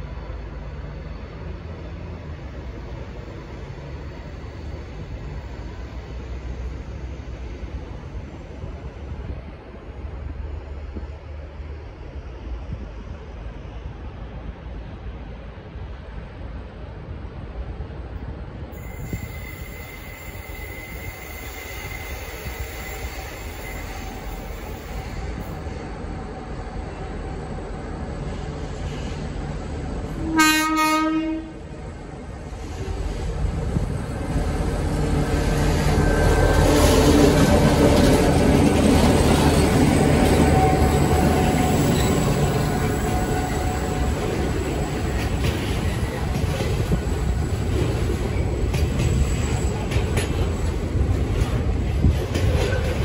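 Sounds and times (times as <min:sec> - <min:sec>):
locomotive engines rumbling: 0:21.9 - 0:53.0
locomotive horn blast: 0:30.1 - 0:31.7
rail clicks: 0:31.8 - 0:53.0.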